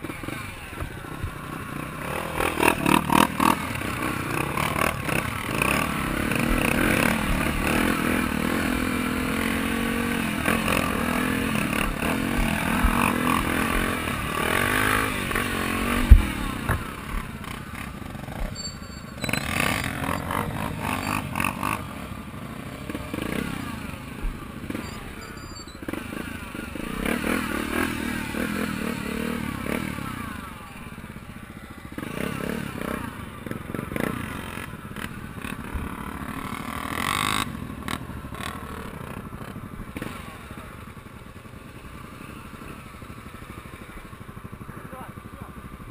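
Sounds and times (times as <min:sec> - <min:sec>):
dirt bike engine revving: 0:00.0 - 0:40.8
sharp thump: 0:15.9 - 0:17.2.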